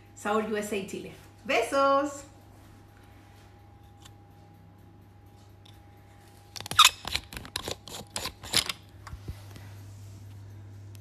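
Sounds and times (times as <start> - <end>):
faint hum: 0.0 - 11.0.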